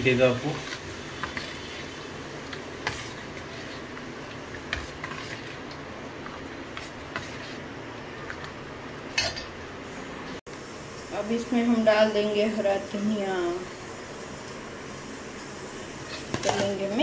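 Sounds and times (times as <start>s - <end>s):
ladle stirring liquid: 0.6s - 8.5s.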